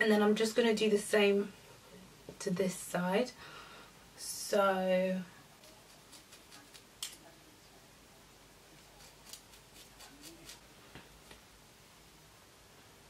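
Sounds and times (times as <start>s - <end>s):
scissors snipping hair: 5.6s - 7.3s, 9.0s - 10.6s.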